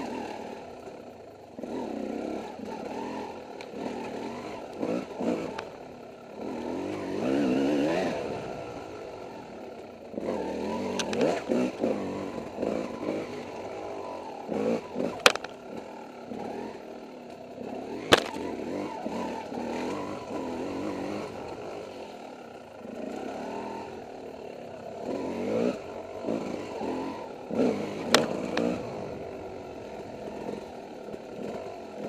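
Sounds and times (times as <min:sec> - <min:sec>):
dirt bike engine revving: 0:00.0 - 0:32.0.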